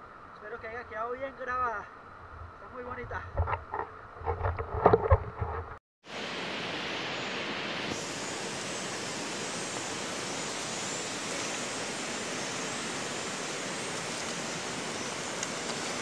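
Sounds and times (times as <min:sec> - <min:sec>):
river flowing: 0:06.1 - 0:16.0.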